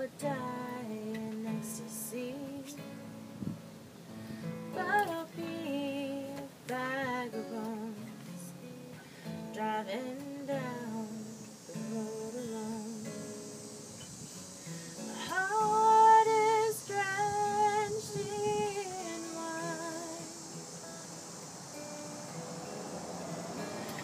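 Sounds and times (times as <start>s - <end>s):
woman singing with vibrato: 0.0s - 3.2s, 4.7s - 13.3s, 15.0s - 20.4s
acoustic guitar: 0.0s - 24.0s.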